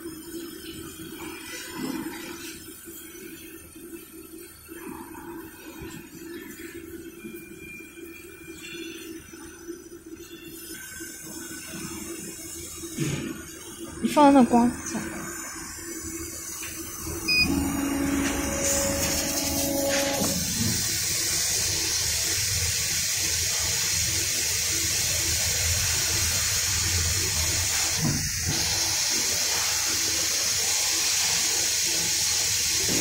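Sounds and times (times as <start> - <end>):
blower fan rushing air: 17.2 - 21.1.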